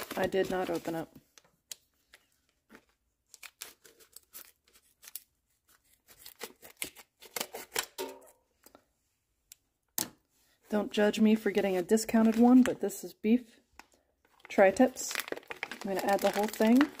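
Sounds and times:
plastic package crinkling: 0:00.0 - 0:01.1, 0:14.2 - 0:17.0.

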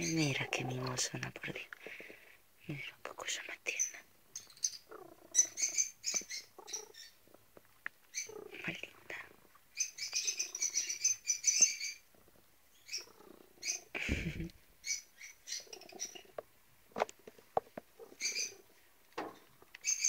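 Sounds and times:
cats chirping and squeaking: 0:00.0 - 0:01.3, 0:03.2 - 0:07.4, 0:08.1 - 0:08.9, 0:09.7 - 0:16.4, 0:17.9 - 0:20.0.

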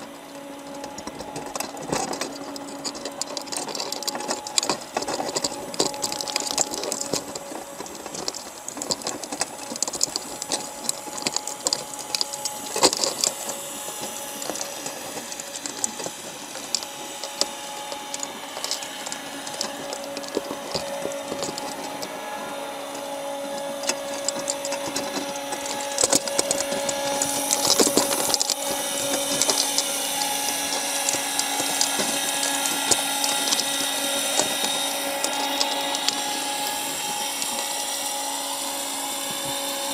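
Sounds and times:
crab shells clicking on wire: 0:00.0 - 0:39.9
underwater mechanical hum: 0:00.0 - 0:39.9.

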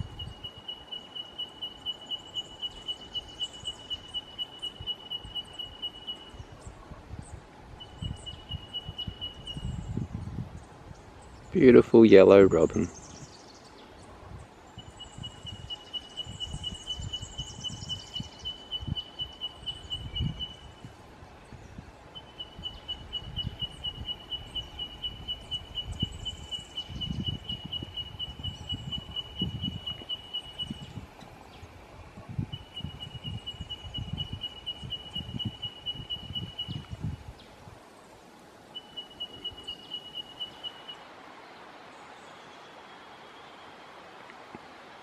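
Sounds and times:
wind gusts on microphone: 0:00.0 - 0:00.6, 0:06.3 - 0:37.9
faint high chirps: 0:32.4 - 0:37.2, 0:38.7 - 0:41.0.

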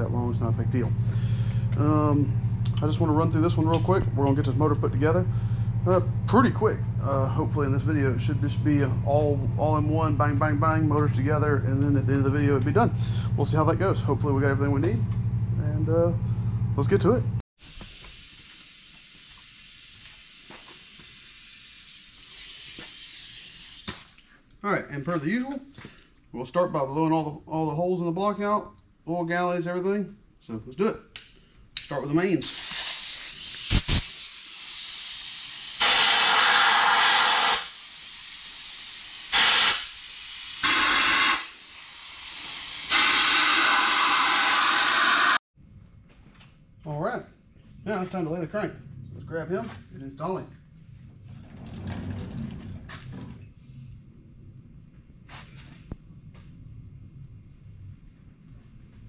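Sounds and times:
steady hiss: 0:17.6 - 0:24.2, 0:32.4 - 0:45.4.

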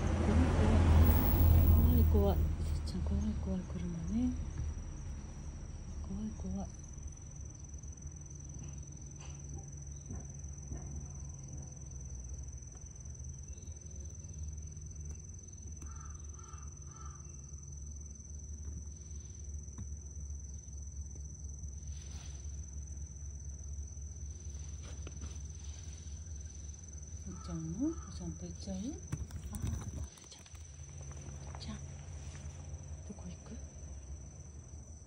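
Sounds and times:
insects trilling: 0:00.0 - 0:35.0
low steady rumble: 0:00.0 - 0:35.0
bird calling: 0:15.8 - 0:17.4.

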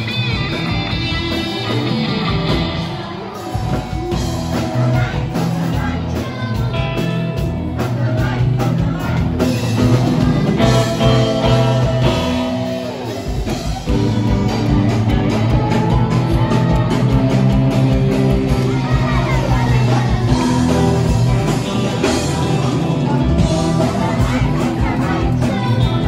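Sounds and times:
drums: 0:00.0 - 0:26.0
electric guitar: 0:00.0 - 0:26.0
woman singing: 0:22.6 - 0:26.0.

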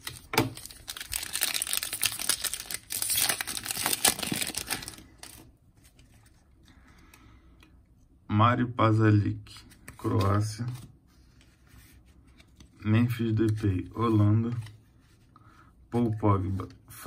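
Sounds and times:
plastic wrapper tearing and crinkling: 0:00.0 - 0:05.5.

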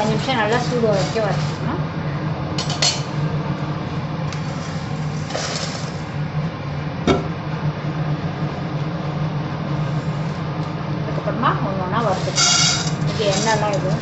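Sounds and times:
dry chillies rustling: 0:00.0 - 0:01.7, 0:12.1 - 0:14.0
steady low hum: 0:00.0 - 0:14.0
spatula clinking steel bowl: 0:12.3 - 0:14.0.

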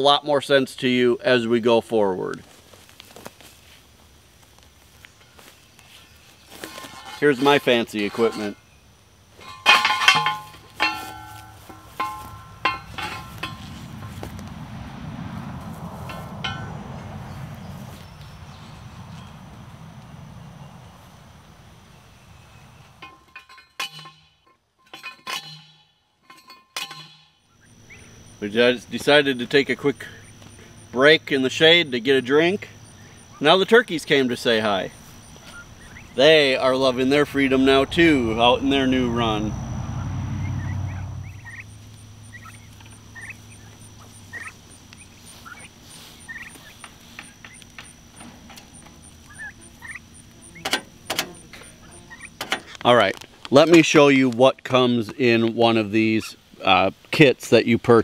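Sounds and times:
turkeys peeping: 0:04.6 - 0:14.6, 0:26.9 - 0:52.8
post driver clanging on steel post: 0:06.6 - 0:08.7, 0:09.4 - 0:14.4, 0:16.0 - 0:16.8, 0:23.0 - 0:27.4, 0:50.5 - 0:52.8
light metallic clinks: 0:06.7 - 0:08.7, 0:09.4 - 0:14.5, 0:16.0 - 0:16.9, 0:23.0 - 0:28.0
sharp knocks: 0:09.4 - 0:14.5.

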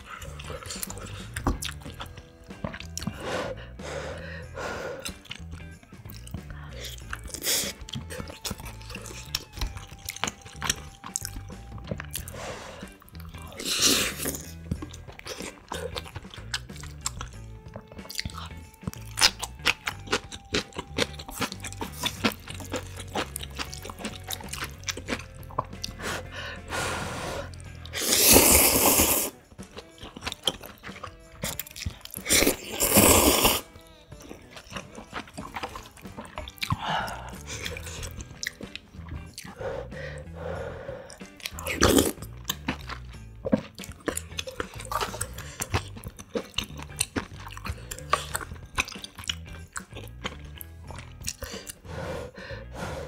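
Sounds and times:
wet chewing with clicks: 0:00.0 - 0:03.2, 0:05.0 - 0:26.3, 0:27.5 - 0:39.6, 0:41.0 - 0:51.9
loud noodle slurps: 0:13.6 - 0:14.4, 0:25.9 - 0:29.4, 0:32.2 - 0:33.7.

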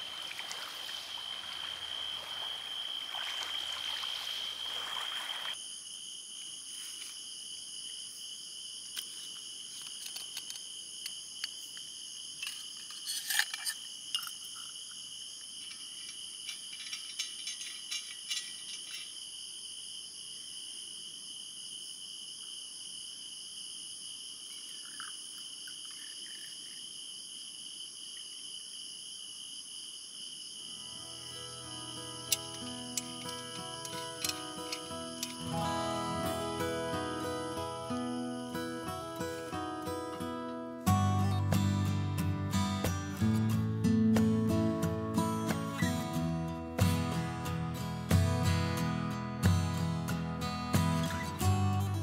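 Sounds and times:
sea water washing at shore: 0:00.0 - 0:05.6
crickets trilling: 0:00.0 - 0:52.0
metallic clicks and clinks: 0:15.6 - 0:19.2, 0:32.3 - 0:35.4.

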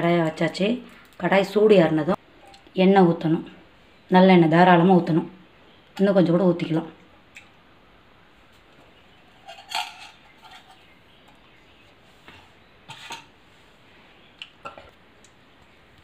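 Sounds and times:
metal cookware clinking: 0:09.4 - 0:10.8, 0:12.9 - 0:13.3.

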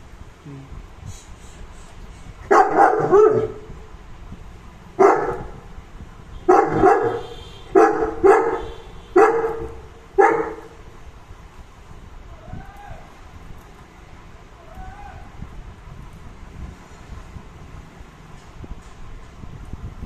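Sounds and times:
dog barking: 0:02.5 - 0:03.7, 0:05.0 - 0:05.6, 0:06.5 - 0:10.8.

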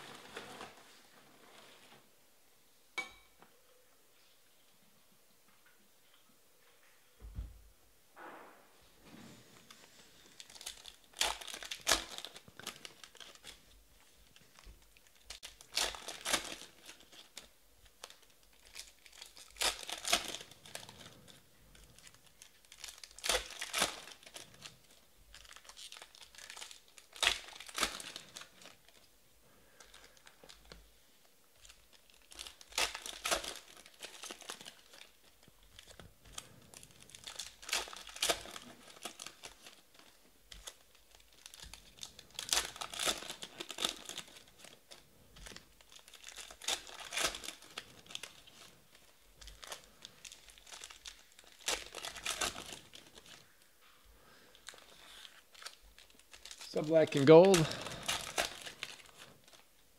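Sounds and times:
foil wrapper tearing and crinkling: 0:09.8 - 0:29.1, 0:31.6 - 0:53.6, 0:54.2 - 0:59.8.

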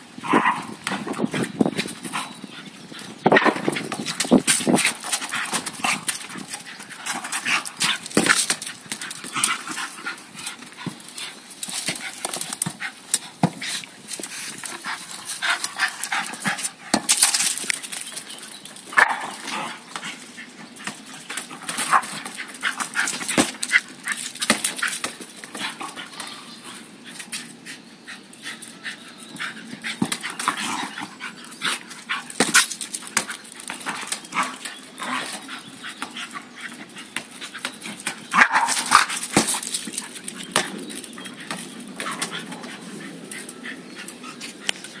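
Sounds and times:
ball and claws knocking on paving: 0:03.2 - 0:10.0, 0:10.6 - 0:18.1, 0:32.3 - 0:35.4, 0:37.1 - 0:42.6.

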